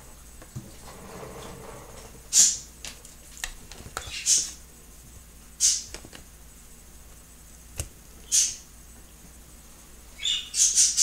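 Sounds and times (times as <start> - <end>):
fork scraping plastic tray: 0.8 - 2.6.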